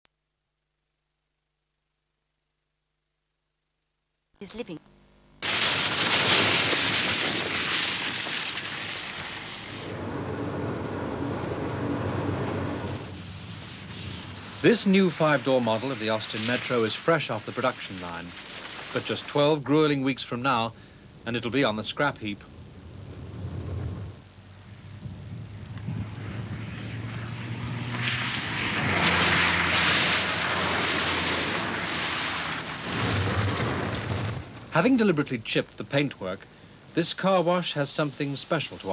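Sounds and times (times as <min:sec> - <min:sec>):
car engine drone from inside: 0:09.7 - 0:14.6, 0:22.4 - 0:32.8
water spray hissing: 0:13.1 - 0:19.3.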